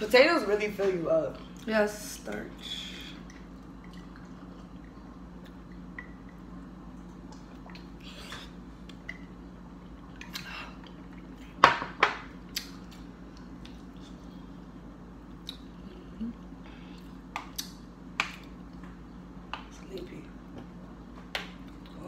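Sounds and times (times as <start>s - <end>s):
person chewing food: 12.4s - 18.8s.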